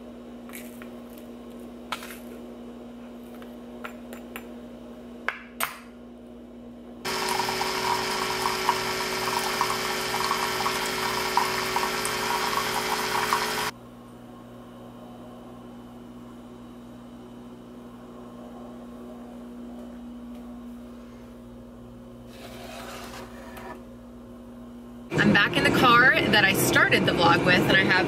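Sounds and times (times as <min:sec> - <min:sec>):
coffee streaming into mug: 0:07.1 - 0:13.7
coffee maker pump humming: 0:07.1 - 0:13.8.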